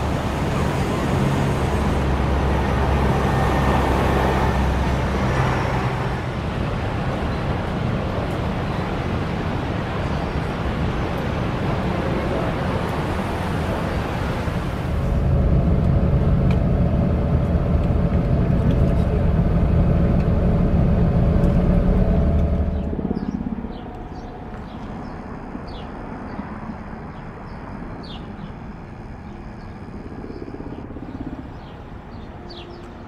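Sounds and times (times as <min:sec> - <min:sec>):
vehicle engine rumbling: 0:00.0 - 0:33.0
bird chirps: 0:22.7 - 0:26.5, 0:29.2 - 0:33.0.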